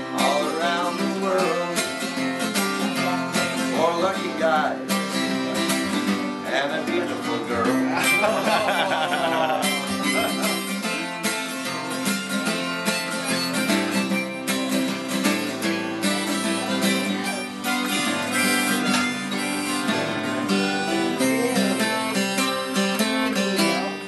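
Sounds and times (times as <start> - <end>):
acoustic guitar strumming: 0.0 - 24.0.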